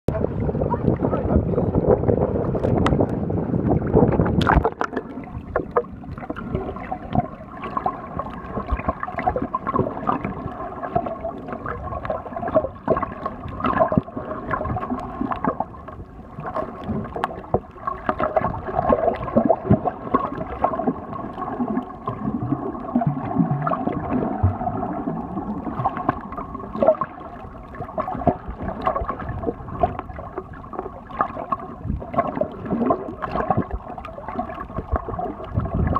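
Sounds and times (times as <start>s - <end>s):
underwater gurgling: 0.1s - 35.9s
underwater hum: 0.1s - 35.9s
water sloshing: 3.8s - 35.9s.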